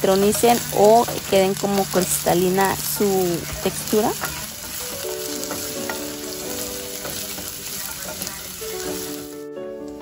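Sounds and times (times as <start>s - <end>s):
spatula scraping pan: 0.0s - 9.4s
onions sizzling in oil: 0.0s - 10.0s.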